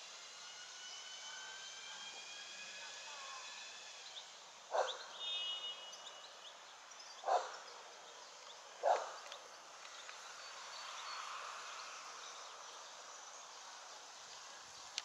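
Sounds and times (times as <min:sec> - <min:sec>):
steady outdoor hiss: 0:00.0 - 0:15.0
dog barking: 0:04.7 - 0:05.0, 0:07.2 - 0:07.6, 0:08.8 - 0:09.2.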